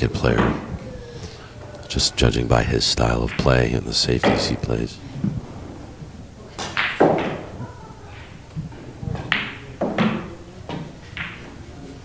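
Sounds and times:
pool balls clacking: 0.0s - 0.8s, 1.7s - 12.0s.

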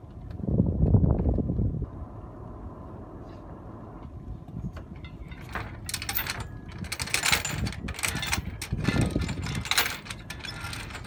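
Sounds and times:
anchor chain rattling: 4.8s - 11.0s.

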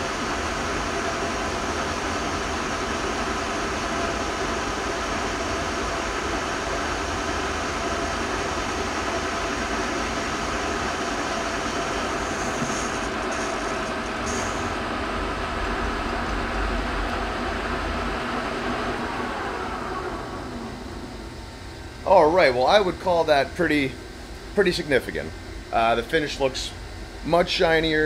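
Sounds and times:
metal lathe turning cut: 10.3s - 21.3s.

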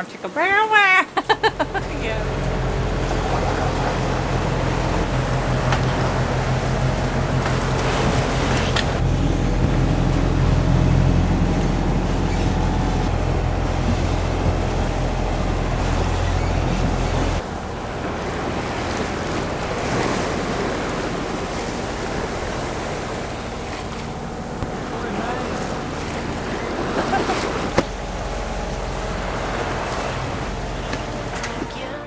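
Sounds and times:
waves rushing: 1.0s - 32.0s
wind rumble on microphone: 1.3s - 31.8s.

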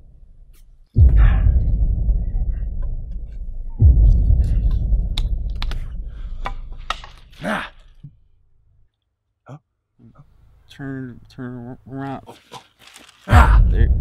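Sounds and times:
low rumble: 0.0s - 7.4s, 13.3s - 14.0s.

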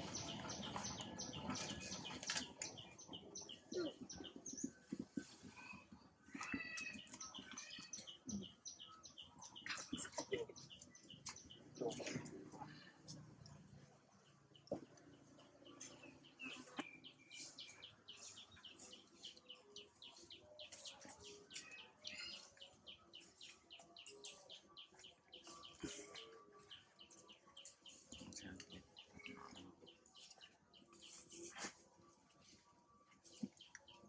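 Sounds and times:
faint high bird chirps: 15.7s - 31.7s.

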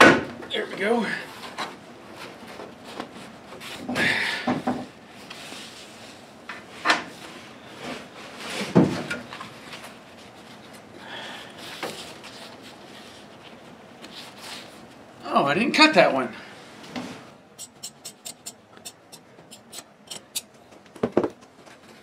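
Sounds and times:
knocks and clicks: 17.6s - 20.4s.

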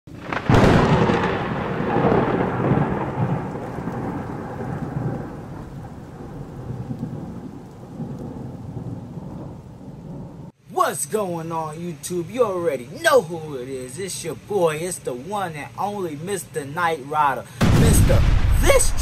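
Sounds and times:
thunder rumbling: 0.1s - 10.5s, 17.6s - 19.0s
rain hissing: 0.1s - 19.0s.

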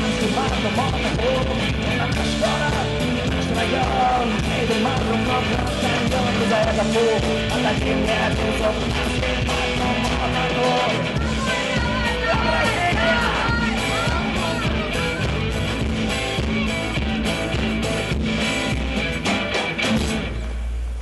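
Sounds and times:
person singing: 0.0s - 16.6s
rock song: 0.0s - 20.8s
guitar: 0.0s - 21.0s.

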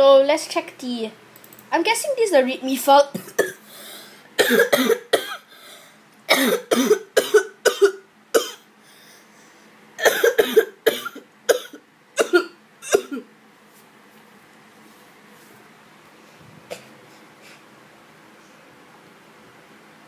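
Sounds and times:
person coughing: 3.1s - 3.7s, 4.4s - 5.5s, 6.3s - 8.6s, 10.0s - 13.3s.

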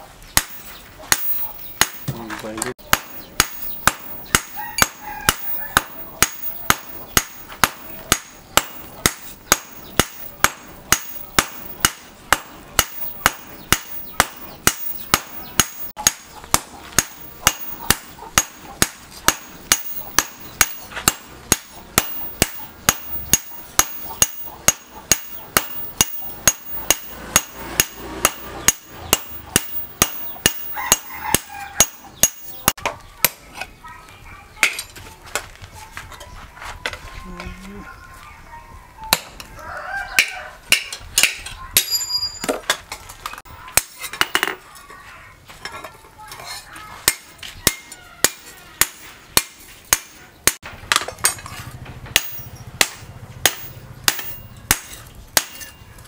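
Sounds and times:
hammer blows on anvil: 2.8s - 32.8s.

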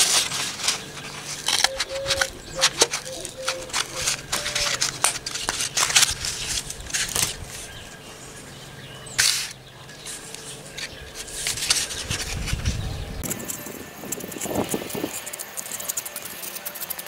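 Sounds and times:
scissors snipping cardboard: 0.0s - 7.4s
crumpled tube rustling: 0.0s - 7.9s, 9.2s - 13.3s.

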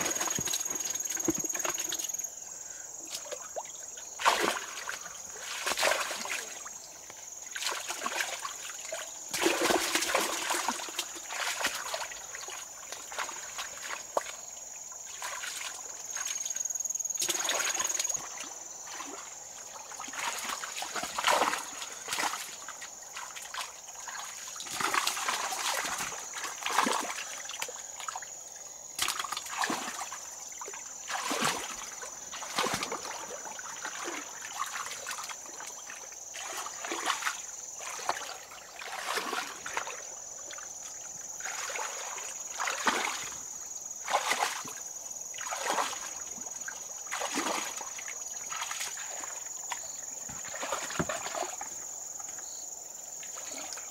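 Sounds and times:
water trickling: 0.0s - 6.9s
water splashing and sloshing: 0.0s - 53.9s.

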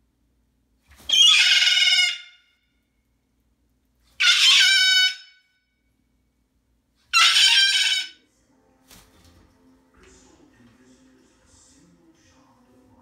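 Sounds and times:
cockatoo screaming: 1.1s - 2.5s, 4.2s - 5.4s, 7.1s - 8.2s.

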